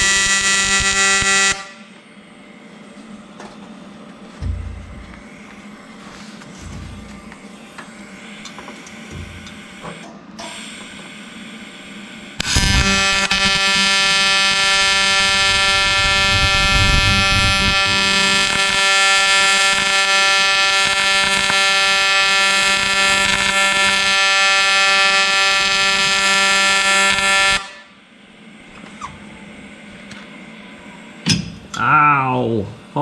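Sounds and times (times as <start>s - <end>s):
welding arc buzzing: 0.0s - 3.3s, 4.2s - 31.8s.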